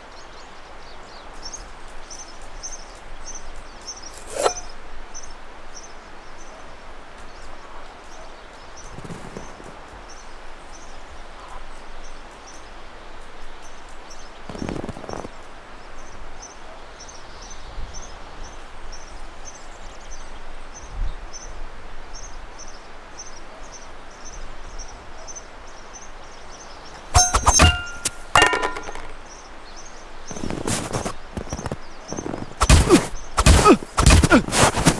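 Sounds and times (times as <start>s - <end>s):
steady background hiss: 0.0s - 34.9s
short high chirp: 27.2s - 28.3s.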